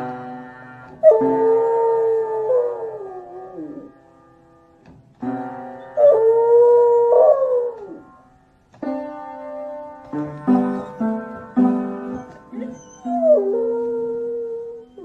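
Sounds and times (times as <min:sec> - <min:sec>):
electronic keyboard chord: 0:00.0 - 0:14.2
dog howling: 0:01.0 - 0:03.9, 0:06.0 - 0:08.0, 0:12.1 - 0:15.0.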